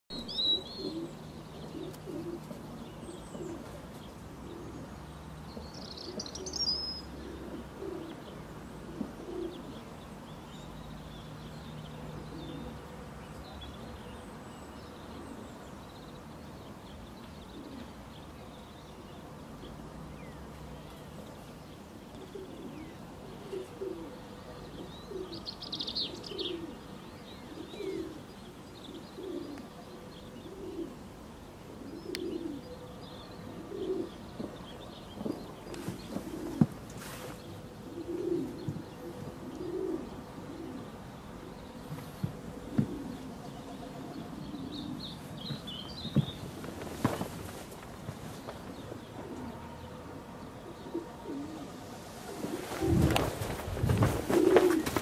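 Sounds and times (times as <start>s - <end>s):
dove cooing: 0.6s - 5.2s, 6.1s - 9.9s, 12.2s - 12.9s, 17.5s - 18.1s, 22.1s - 34.5s, 35.2s - 49.8s, 50.6s - 55.0s.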